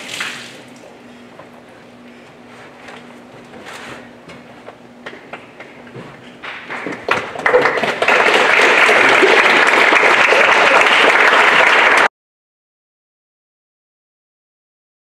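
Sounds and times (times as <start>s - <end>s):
audience applauding: 6.4s - 12.1s.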